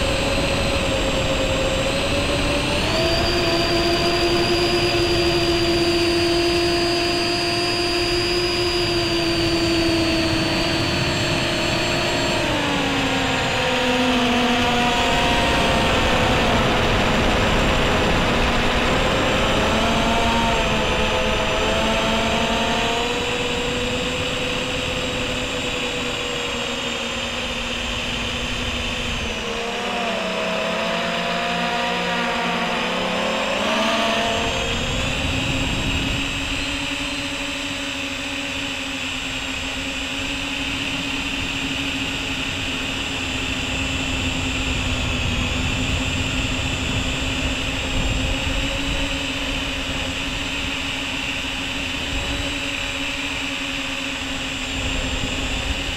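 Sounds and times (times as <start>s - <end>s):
drone motors buzzing whine: 0.0s - 55.9s.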